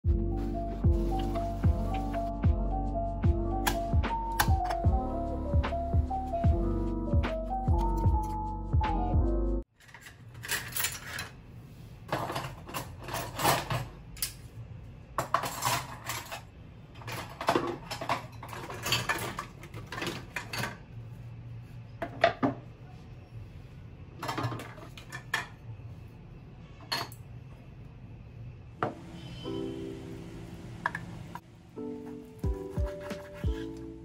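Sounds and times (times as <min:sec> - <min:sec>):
dishes and utensils clinking: 0:12.1 - 0:14.4, 0:15.2 - 0:20.8.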